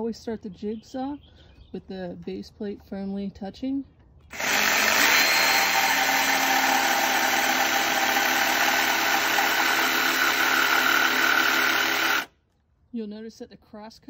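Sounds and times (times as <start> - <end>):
jigsaw cutting wood: 4.3 - 12.3.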